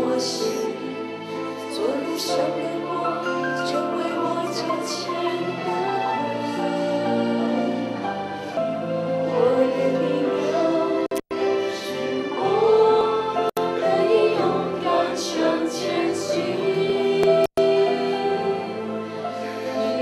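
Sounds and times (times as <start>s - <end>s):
group singing worship song: 1.7s - 7.9s, 11.7s - 20.0s.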